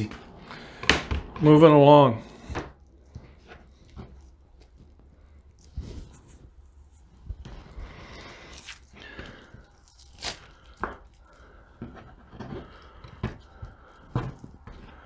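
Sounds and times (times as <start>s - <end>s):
wet tearing of raw meat: 2.8s - 11.7s.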